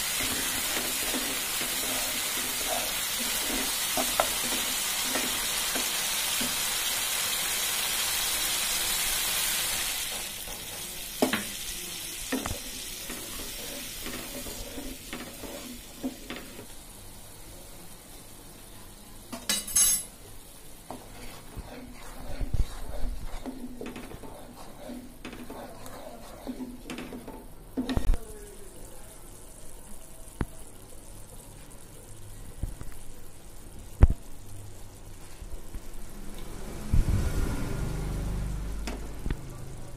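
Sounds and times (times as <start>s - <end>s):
paste sizzling in oil: 0.0s - 19.3s, 20.2s - 28.1s
wooden spatula scraping pan: 0.1s - 6.6s, 12.4s - 16.6s, 20.9s - 28.0s.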